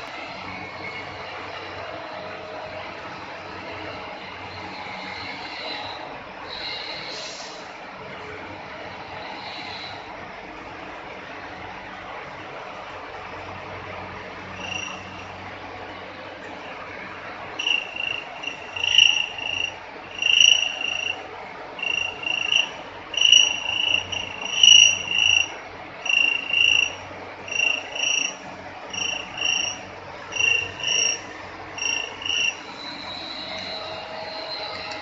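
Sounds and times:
faint low hum: 8.2 - 35.0
high shrill chirps: 14.6 - 15.2, 17.6 - 21.2, 21.8 - 34.9.

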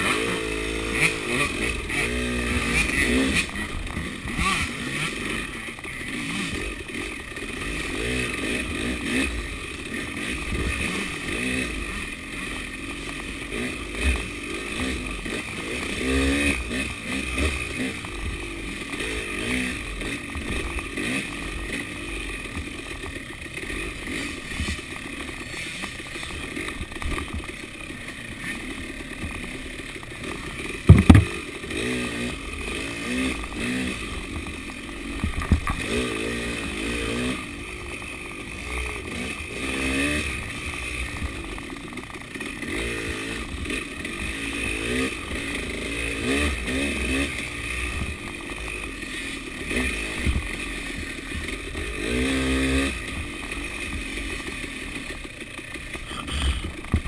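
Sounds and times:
dirt bike engine revving: 0.0 - 57.0
sharp loud knocks: 30.9 - 31.4.

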